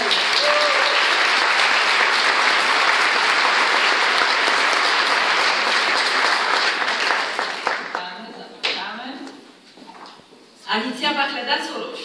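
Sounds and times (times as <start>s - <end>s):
large audience applauding: 0.0s - 8.1s.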